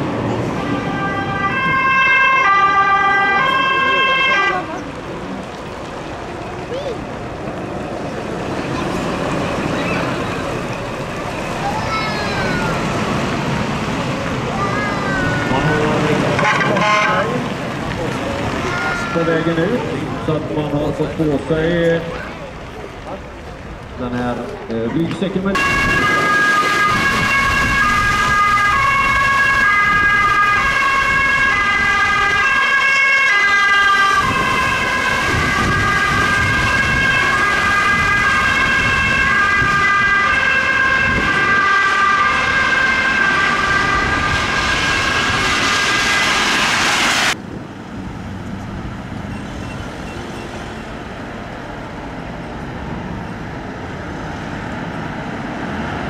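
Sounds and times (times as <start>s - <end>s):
ambulance siren: 0.0s - 4.8s, 14.9s - 17.5s, 25.5s - 47.4s
engine and traffic noise: 0.0s - 56.0s
road noise: 0.0s - 56.0s.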